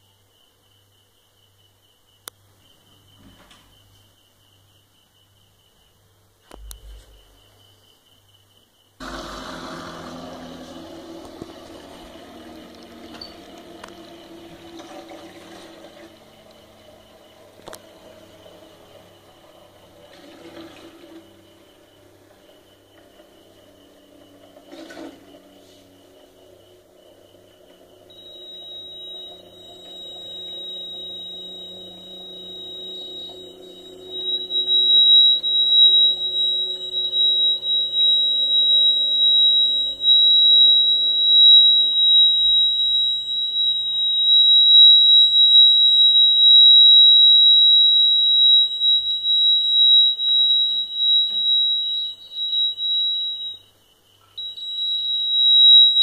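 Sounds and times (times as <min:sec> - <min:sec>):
low hum: 0:09.0 - 0:53.4
high-pitched electronic buzzer tone: 0:12.0 - 0:56.0.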